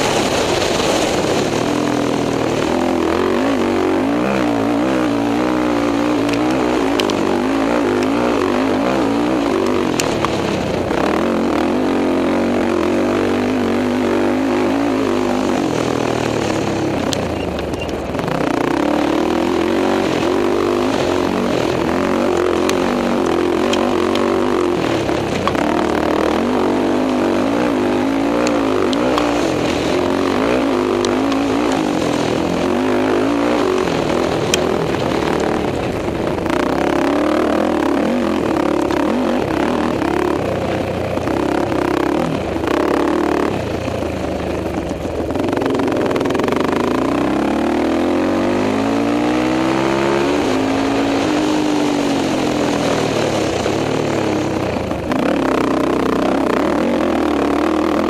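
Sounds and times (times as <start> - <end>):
quad engine running hard: 0.0 - 58.0
sharp ticks: 4.5 - 8.6.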